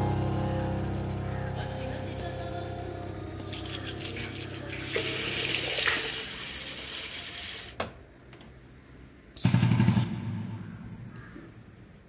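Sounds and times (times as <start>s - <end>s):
low buzzing rattle: 0.0s - 4.9s, 9.4s - 12.0s
water running from tap: 3.5s - 7.8s.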